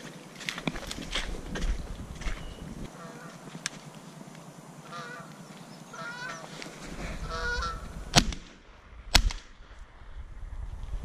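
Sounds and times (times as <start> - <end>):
geese honking: 2.9 - 3.6, 4.8 - 8.0
shotgun shots: 8.1 - 9.7.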